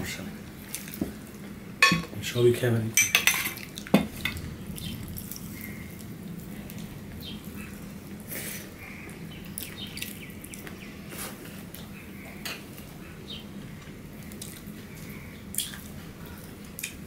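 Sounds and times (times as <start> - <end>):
steady low hum: 0.0 - 17.0
wet chewing and lip-smacking: 9.5 - 10.8, 13.8 - 17.0.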